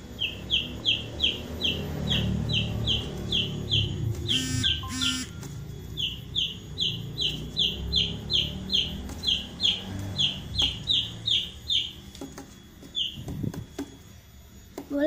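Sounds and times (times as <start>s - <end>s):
chick peeping in distress: 2.6s - 5.5s.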